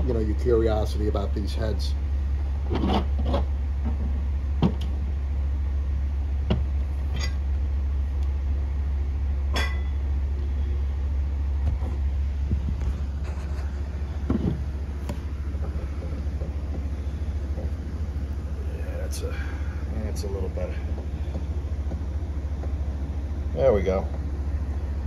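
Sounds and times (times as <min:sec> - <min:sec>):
steady low hum: 0:00.0 - 0:25.0
ringing metal clank: 0:09.5 - 0:10.0.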